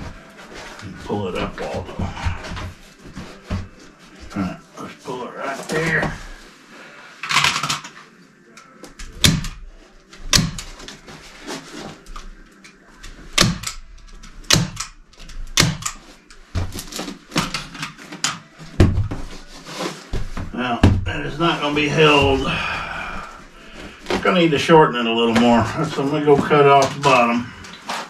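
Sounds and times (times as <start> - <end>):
rustling: 18.0 - 20.6.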